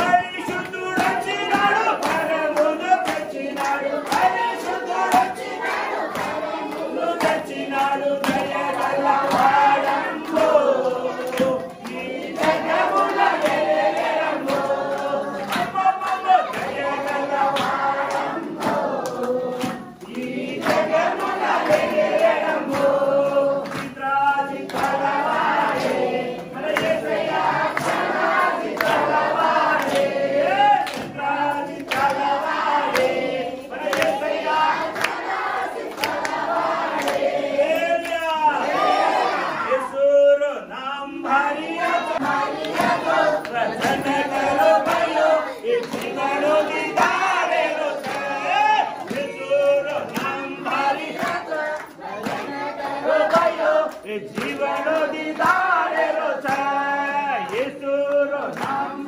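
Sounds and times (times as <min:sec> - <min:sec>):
hand claps: 0:00.0 - 0:39.4, 0:41.3 - 0:59.0
congregation singing: 0:00.0 - 0:59.0.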